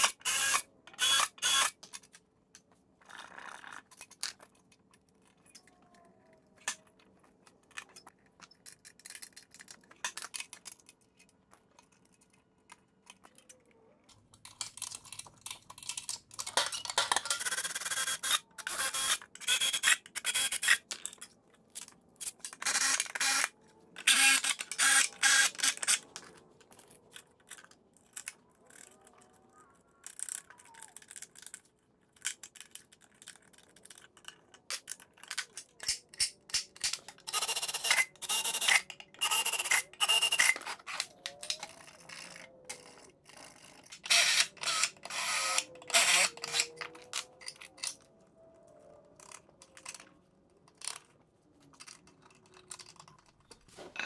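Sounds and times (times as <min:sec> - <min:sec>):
cordless drill boring into metal: 0:00.0 - 0:01.7, 0:22.6 - 0:26.0, 0:44.0 - 0:46.7.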